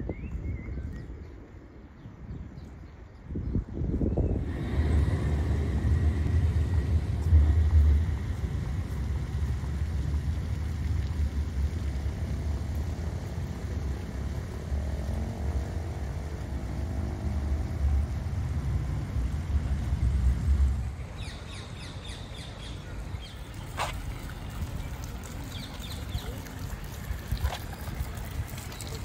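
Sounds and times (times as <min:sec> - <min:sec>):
road traffic rumble: 0:01.1 - 0:29.0
vehicle engine passing: 0:04.4 - 0:21.2
small birds chirping: 0:21.0 - 0:29.0.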